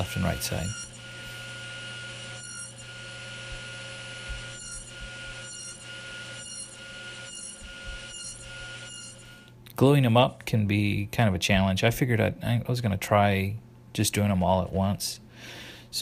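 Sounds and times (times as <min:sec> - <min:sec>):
saw cutting wood: 0:00.0 - 0:09.4
table saw running: 0:00.0 - 0:09.4.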